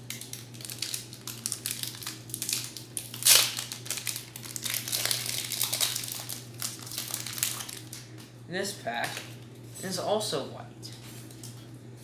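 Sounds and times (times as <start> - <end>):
foil wrapper crinkling: 0.0 - 8.3
foil ripping: 0.1 - 8.1.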